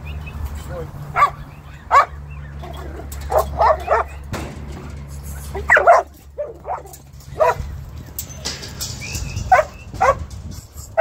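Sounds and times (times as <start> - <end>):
dog barking: 1.2 - 4.2, 5.6 - 7.6.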